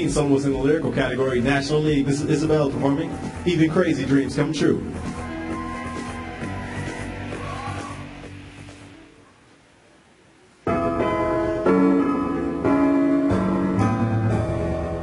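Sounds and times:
piano music: 10.7s - 15.0s.

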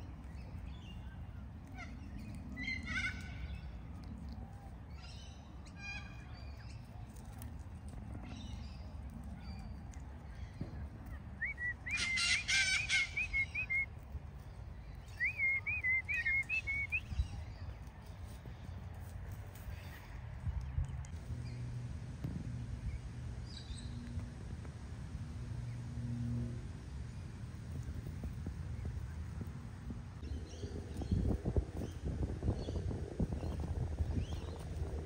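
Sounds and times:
low background rumble: 0.0s - 35.0s
parrots squawking: 11.9s - 13.6s.

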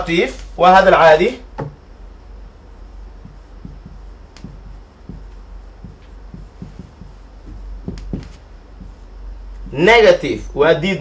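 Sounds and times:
low hum: 1.4s - 10.6s
marker writing on whiteboard: 2.4s - 10.4s.

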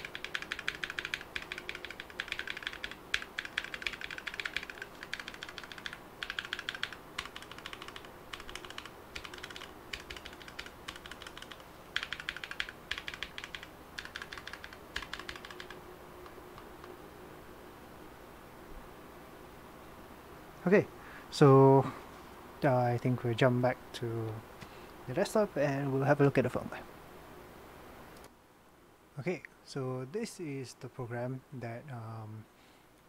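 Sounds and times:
mechanical keyboard clacking: 0.0s - 15.8s.

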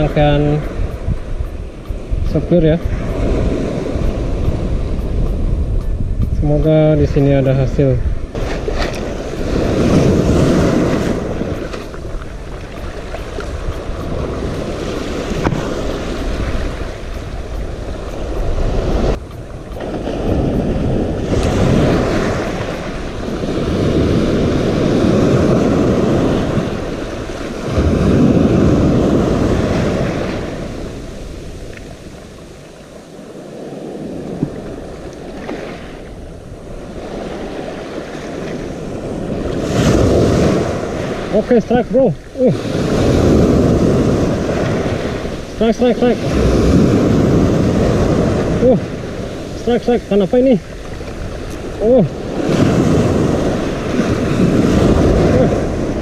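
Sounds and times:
sea waves washing ashore: 0.0s - 56.0s
wind buffeting microphone: 0.0s - 56.0s.

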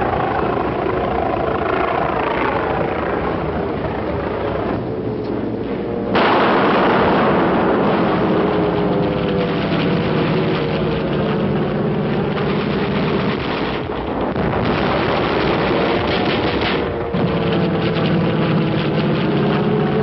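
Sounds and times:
aircraft engine drone: 0.0s - 20.0s
loud explosion roar: 6.0s - 20.0s.

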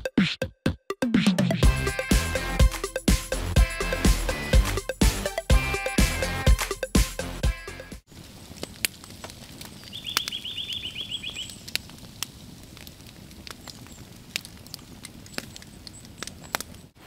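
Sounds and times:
snow pattering from trees: 8.1s - 17.0s
small bird trilling: 9.9s - 11.5s.

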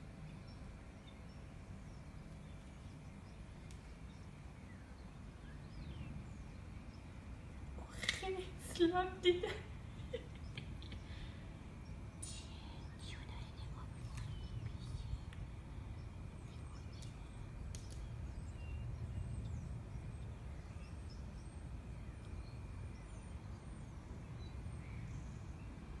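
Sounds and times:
faint bird chirps: 9.6s - 25.9s
low rumble: 11.6s - 21.4s.

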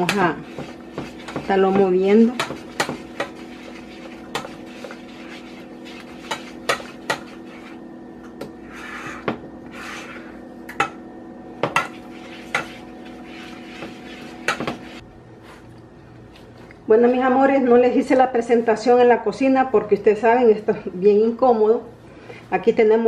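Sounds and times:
utensil scraping saucepan: 0.0s - 7.8s, 8.6s - 10.4s, 11.6s - 15.0s
low steady hum: 0.0s - 23.0s.

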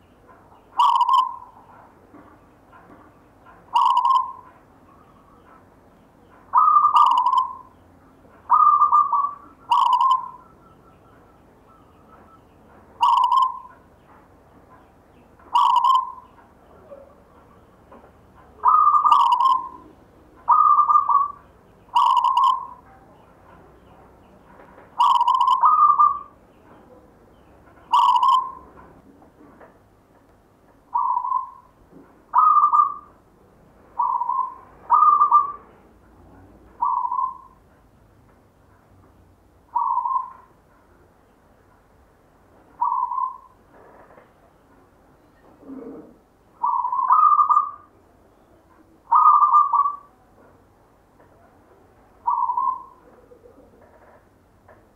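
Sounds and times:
dove cooing: 0.8s - 1.8s, 3.7s - 4.5s, 6.5s - 7.7s, 8.5s - 10.6s, 13.0s - 13.8s, 15.5s - 17.6s, 18.6s - 22.9s, 25.0s - 26.4s, 27.9s - 28.8s, 30.9s - 31.7s, 32.3s - 33.1s, 34.0s - 35.7s, 36.8s - 37.6s, 39.7s - 40.5s, 42.8s - 43.6s, 45.4s - 47.9s, 49.0s - 50.1s, 52.2s - 54.2s.

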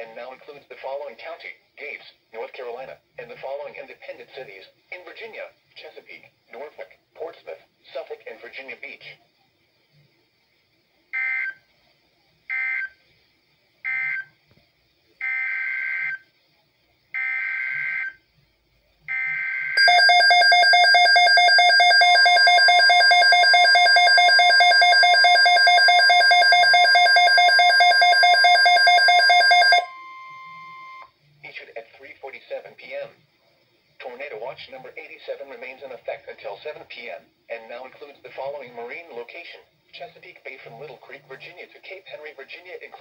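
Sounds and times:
low steady warning tone: 19.0s - 31.2s
pulsing electronic alarm tone: 19.1s - 31.1s.

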